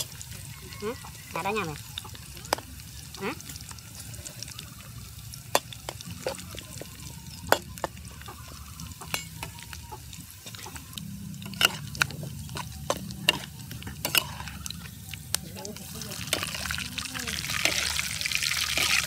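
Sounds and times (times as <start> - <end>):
vegetables sizzling in oil: 0.0 - 19.0
metal spatula clanking against wok: 11.4 - 14.4.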